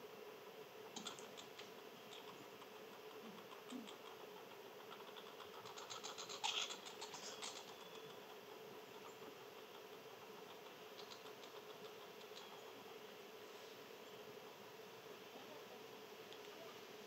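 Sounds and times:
faint steady hum: 0:00.0 - 0:17.0
light cracking clicks of seeds: 0:16.2 - 0:16.6.

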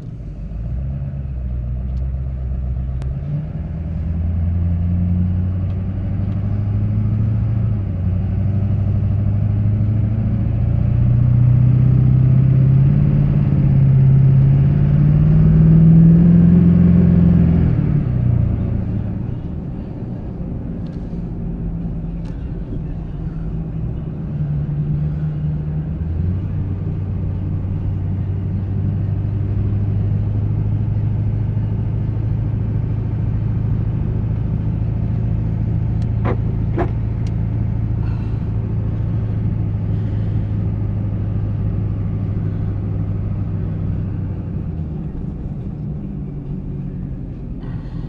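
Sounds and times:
road noise: 0:00.0 - 0:48.0
truck engine droning in cab: 0:00.0 - 0:48.0
short squeaks: 0:36.1 - 0:37.2.

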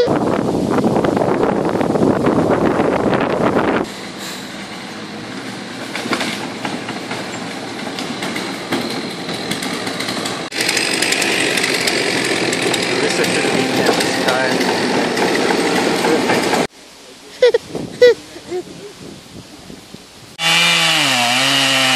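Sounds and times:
excavator engine running: 0:02.3 - 0:16.7.

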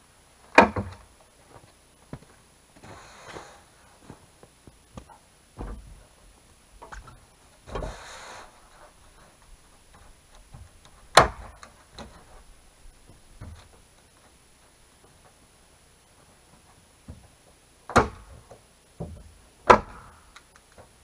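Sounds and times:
rustling scrape: 0:02.8 - 0:04.2
knocks and taps on wooden roof: 0:05.6 - 0:06.0, 0:09.9 - 0:12.3, 0:13.1 - 0:13.8, 0:17.0 - 0:20.1.

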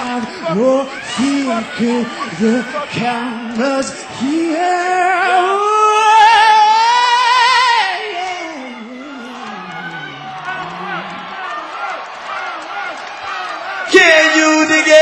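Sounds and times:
person singing with vibrato: 0:00.0 - 0:11.4.

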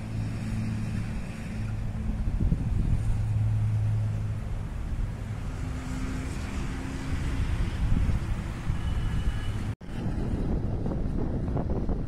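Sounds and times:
diesel engine rumbling: 0:00.0 - 0:12.0.

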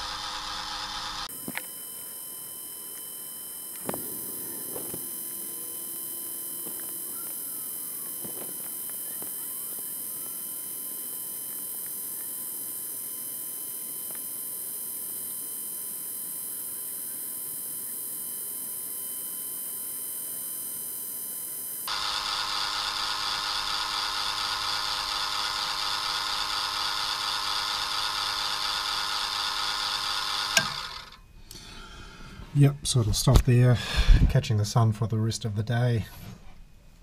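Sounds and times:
gear motor whining: 0:00.0 - 0:02.2, 0:02.9 - 0:18.3, 0:21.8 - 0:31.6
motor stop click: 0:21.9 - 0:31.2.

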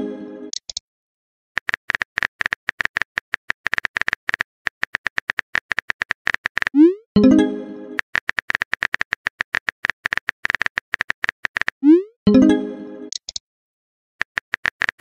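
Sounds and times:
phone keyboard clicks: 0:01.6 - 0:06.7, 0:08.0 - 0:11.8, 0:14.2 - 0:15.0.

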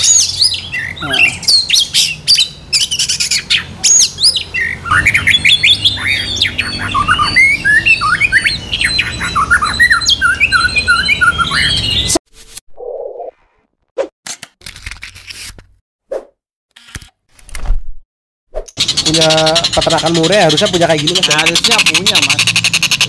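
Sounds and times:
songbirds chorus: 0:00.0 - 0:12.1.

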